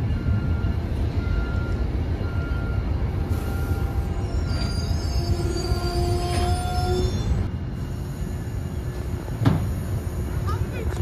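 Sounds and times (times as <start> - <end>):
low rumble of train: 0.0 - 11.0
train wheels squealing on rails: 2.4 - 10.8.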